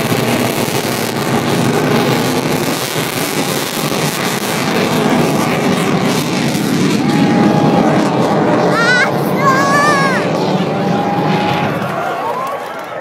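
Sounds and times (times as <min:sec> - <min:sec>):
jet engine roar: 0:00.0 - 0:13.0.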